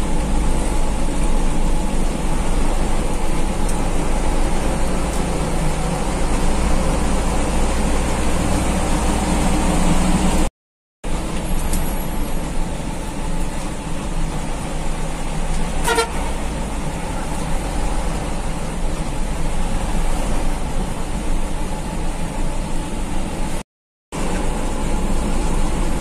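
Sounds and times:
bus engine and road rumble: 0.0 - 26.0
vehicle horn toot: 15.8 - 16.3.

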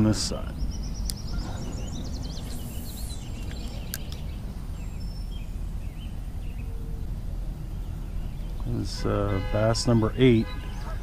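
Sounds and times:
steady low rumble: 0.0 - 9.2
bird chirps: 0.0 - 11.0
sharp click: 3.4 - 4.3.

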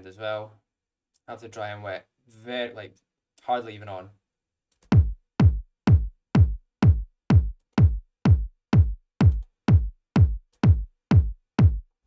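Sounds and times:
electronic kick drum loop: 4.9 - 12.0.

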